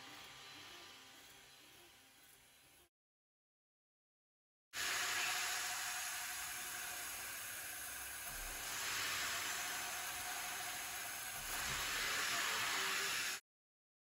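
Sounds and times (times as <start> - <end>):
three d printer hissing: 8.3 - 13.4.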